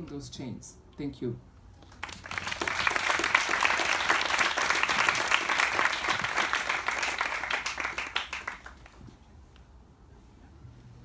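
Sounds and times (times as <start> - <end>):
audience applause: 1.9 - 9.0.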